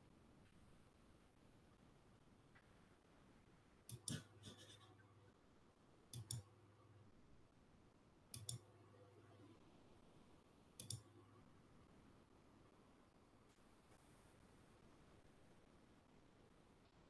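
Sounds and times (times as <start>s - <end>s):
faint double clicks: 10.8s - 11.1s.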